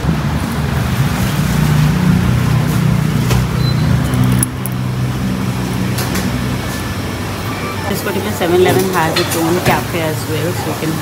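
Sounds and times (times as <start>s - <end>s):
engine humming: 0.0s - 11.0s
street traffic: 0.0s - 11.0s.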